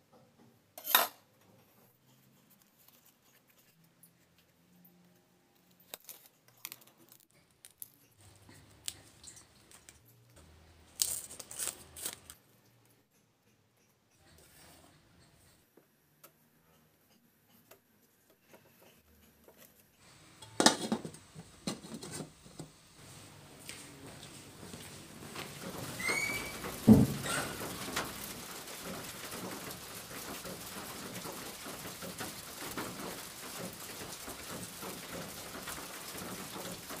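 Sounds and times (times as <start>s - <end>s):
leaves crackling and rustling: 10.9s - 12.4s, 23.0s - 37.0s
footsteps on tiled floor: 23.0s - 27.5s.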